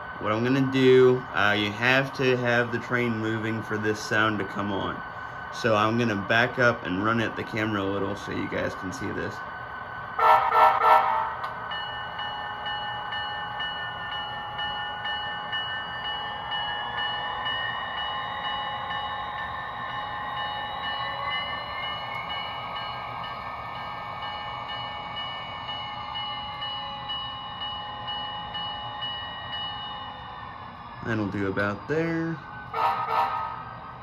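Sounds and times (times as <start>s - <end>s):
model train diesel engine sound: 0.0s - 34.0s
steady high tone: 0.0s - 34.0s.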